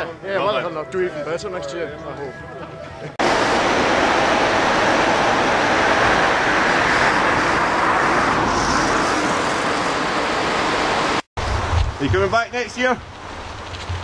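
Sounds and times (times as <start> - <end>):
river rushing over rapids: 3.2 - 11.2.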